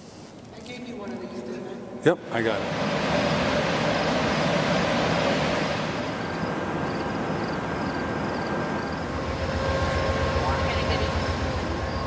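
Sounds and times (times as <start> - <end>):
idling diesel locomotive: 1.8 - 12.0
train car ventilation: 2.0 - 12.0.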